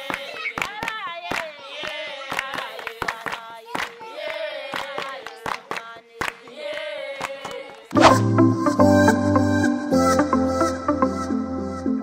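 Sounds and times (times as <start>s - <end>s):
hands clapping along: 0.0s - 8.0s
group singing: 1.1s - 8.3s.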